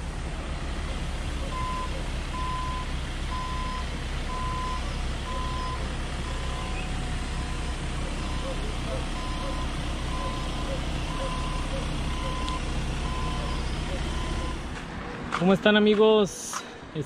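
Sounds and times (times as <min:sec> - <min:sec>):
van engine humming: 0:00.0 - 0:17.0
reversing alarm beeping: 0:01.4 - 0:14.7.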